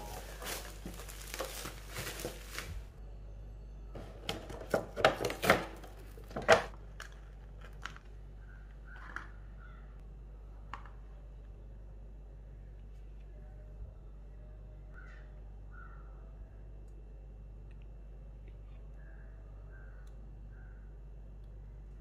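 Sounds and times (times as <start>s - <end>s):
plastic packaging crinkling: 0.0s - 3.0s
sharp plastic crackles and clicks: 4.7s - 9.3s.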